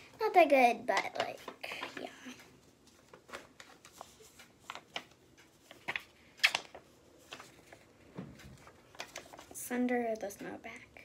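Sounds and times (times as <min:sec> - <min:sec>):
paper rustling and crinkling: 0:02.8 - 0:09.7.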